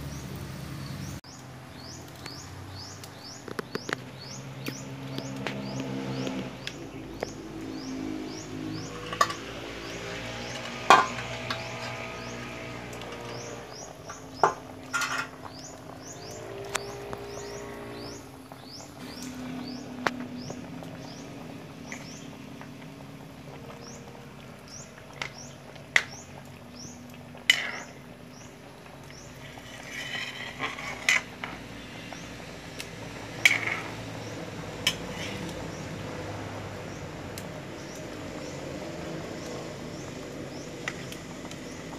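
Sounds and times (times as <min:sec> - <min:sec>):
small bird chirping: 0:00.0 - 0:14.7
pot bubbling: 0:00.0 - 0:41.9
spatula scraping against wok: 0:08.8 - 0:13.7, 0:14.4 - 0:15.4, 0:27.5 - 0:28.0, 0:29.2 - 0:32.0, 0:33.3 - 0:34.0, 0:34.8 - 0:35.6.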